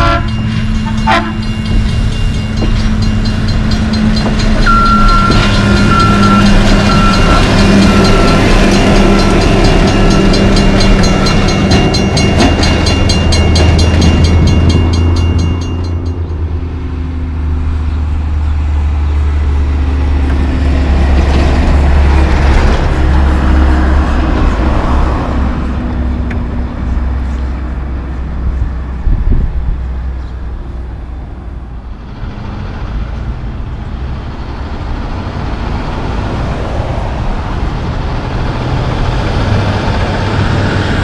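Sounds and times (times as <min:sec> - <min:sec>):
rail machine ticking on track: 0:00.0 - 0:16.6
truck diesel engine drone: 0:00.0 - 0:41.0.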